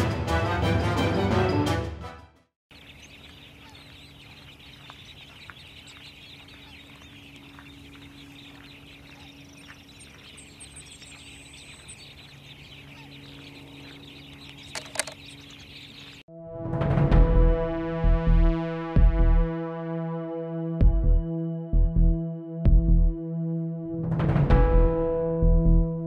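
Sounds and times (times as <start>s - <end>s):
sharp animal calls: 2.8s - 16.1s.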